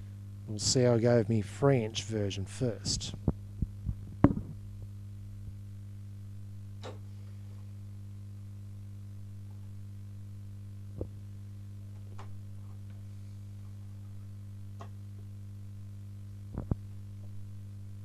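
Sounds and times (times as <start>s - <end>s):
low electrical hum: 0.0s - 18.0s
objects knocking and clicking: 4.2s - 4.6s.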